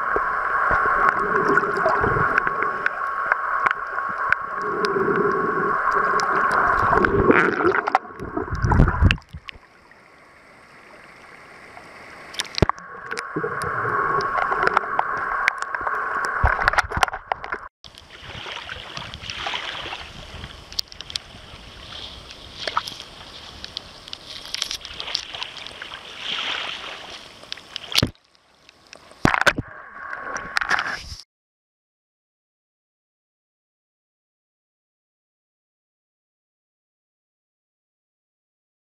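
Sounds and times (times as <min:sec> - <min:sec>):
underwater gurgling and sloshing: 0:00.0 - 0:31.2
small waves washing on beach: 0:17.9 - 0:28.1.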